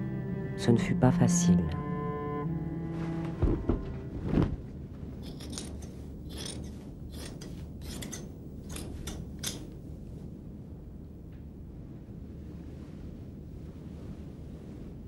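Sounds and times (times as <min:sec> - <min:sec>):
steady low hum: 0:00.0 - 0:15.0
dull knocks: 0:03.2 - 0:04.7
metal blade scraping: 0:05.2 - 0:09.7.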